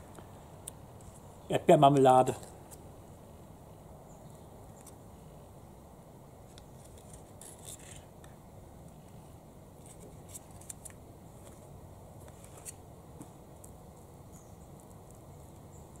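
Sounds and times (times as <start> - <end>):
faint outdoor background: 0.0 - 16.0.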